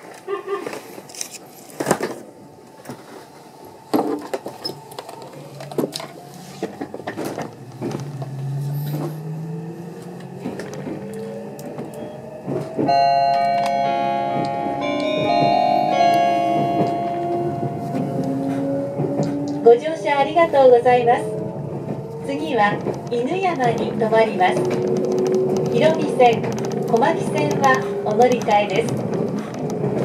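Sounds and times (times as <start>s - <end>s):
train knocks and clatters: 3.8s - 30.0s
traction motor whine rising: 4.9s - 12.8s
onboard chime: 12.9s - 18.0s.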